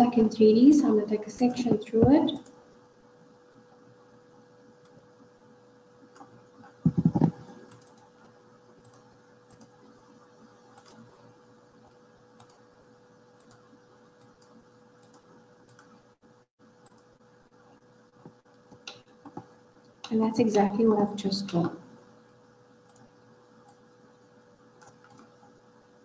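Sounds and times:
faint electrical hum: 0.0 - 26.0
mouse and keyboard clicks: 10.7 - 11.1.

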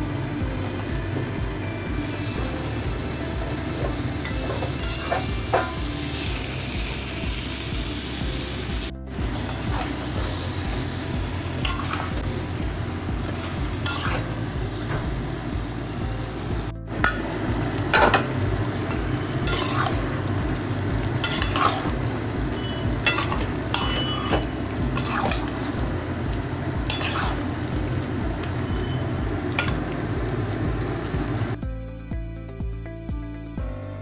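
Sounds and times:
meat sizzling: 0.0 - 31.6
metal spatula scraping pan: 11.6 - 12.3, 13.4 - 14.4, 19.4 - 20.2, 21.2 - 22.0, 23.0 - 25.8, 26.9 - 27.5.

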